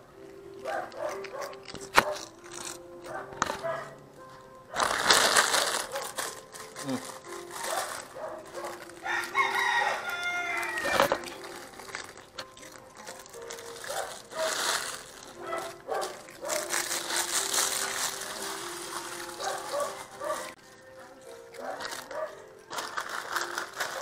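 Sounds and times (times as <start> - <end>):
cats crunching crackers: 0.1 - 24.0
rooster crowing: 9.0 - 11.2.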